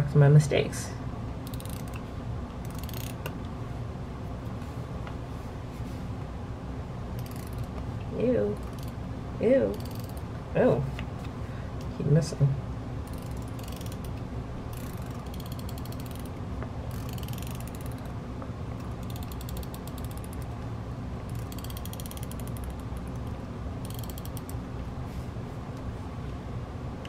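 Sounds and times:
correction tape ticking on paper: 19.0 - 20.4.

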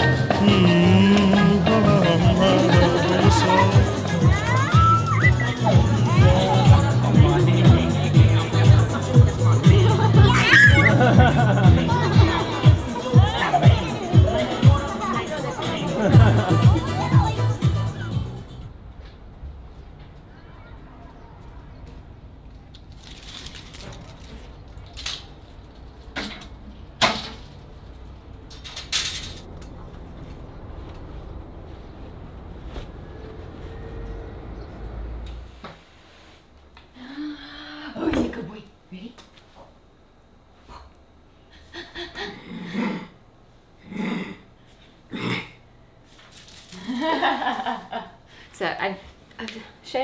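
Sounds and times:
low outdoor rumble: 21.0 - 35.6
sharp snaps and clacks: 22.5 - 29.8
faint steady hum: 25.4 - 50.0.

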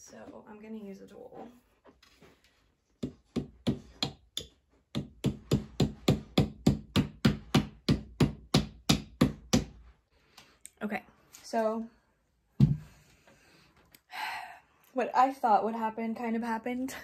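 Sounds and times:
hammer knocking: 3.0 - 9.8.

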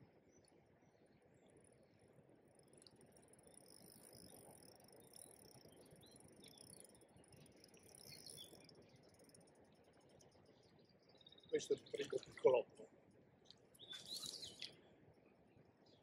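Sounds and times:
high insect trill: 2.5 - 10.0
bird chirps: 3.6 - 12.4, 13.4 - 14.9.

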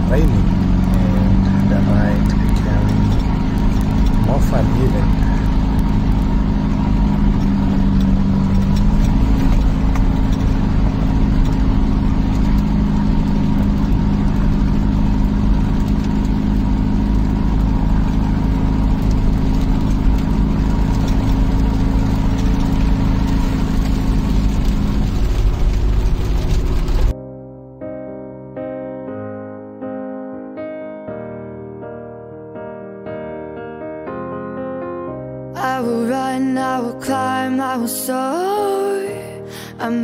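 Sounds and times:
jeep engine running: 0.0 - 27.1
road and wind rumble: 0.0 - 27.2
piano music: 0.0 - 40.0.

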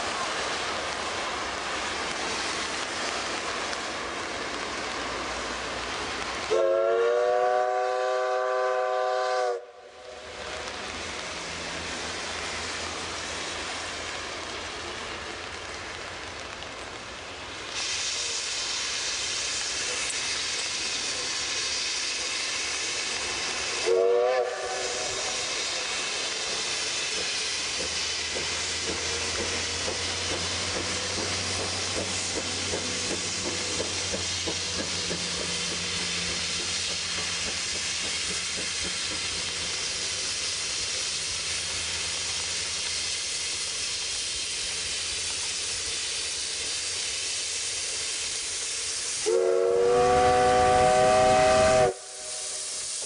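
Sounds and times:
steam engine rumble: 0.0 - 53.0
steam hiss: 0.0 - 53.0
steam whistle blast: 6.5 - 10.2, 23.8 - 25.8, 49.2 - 53.0.

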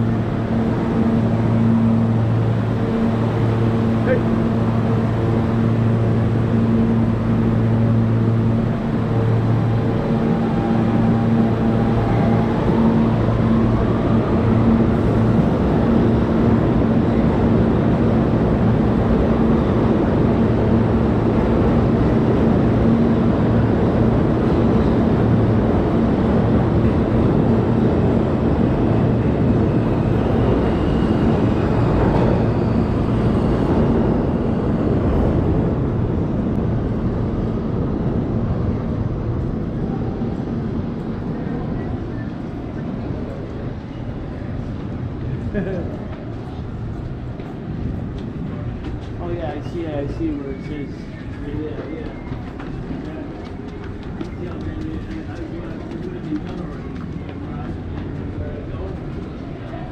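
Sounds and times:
subway train rumbling past: 0.0 - 59.9.

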